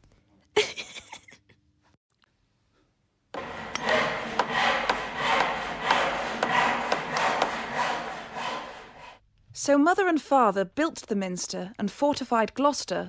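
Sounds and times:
hand saw cutting wood: 3.4s - 9.2s.

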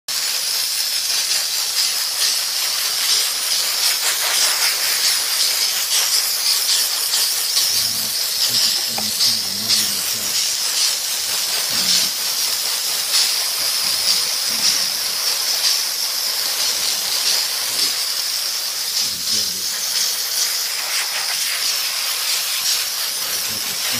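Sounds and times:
steam cleaner hissing: 0.1s - 23.9s.

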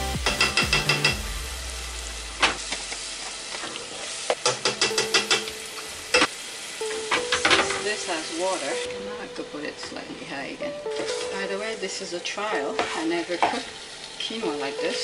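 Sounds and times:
food sizzling in a pan: 0.9s - 15.0s
utensil knocking against pan: 4.4s - 5.5s.

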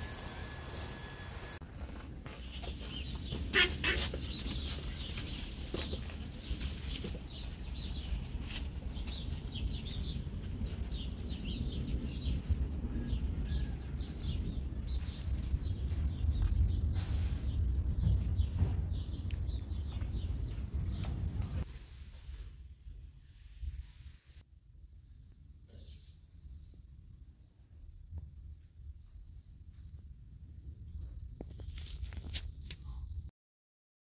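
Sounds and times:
birds chirping: 2.4s - 21.6s.

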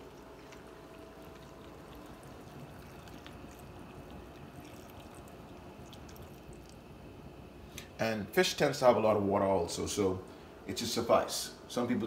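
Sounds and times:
water pouring and trickling: 0.0s - 6.9s.

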